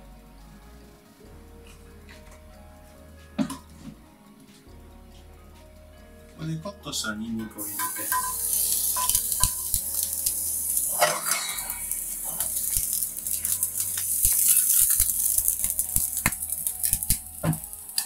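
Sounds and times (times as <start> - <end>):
pan knocking on burner grate: 7.6 - 11.9
garlic sizzling in oil: 7.6 - 18.0.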